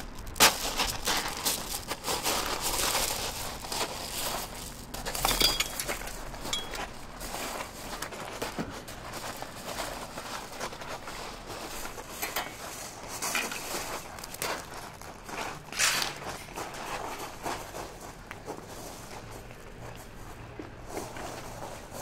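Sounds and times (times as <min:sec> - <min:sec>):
gravel crunching underfoot: 0:00.0 - 0:22.0
stones clinking: 0:05.0 - 0:06.9.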